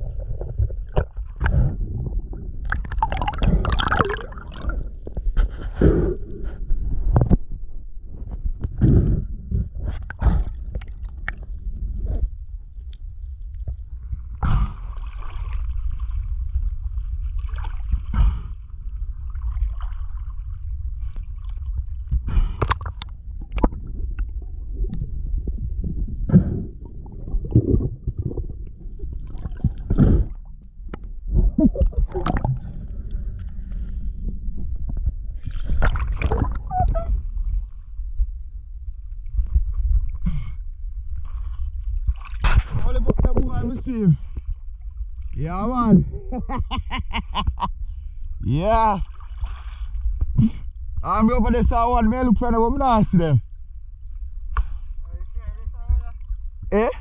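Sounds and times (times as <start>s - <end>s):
bubbles and splashing: 0.0s - 7.2s, 10.0s - 37.8s
underwater knocks and crackles: 0.0s - 45.4s
muffled underwater rumble: 0.0s - 57.0s.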